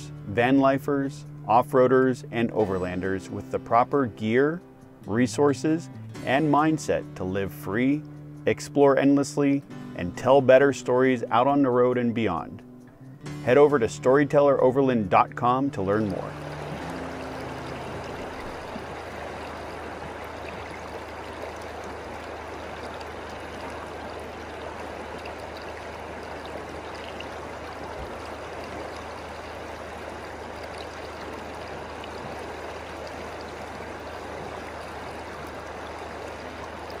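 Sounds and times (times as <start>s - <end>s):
river water running over stones: 13.5s - 37.0s.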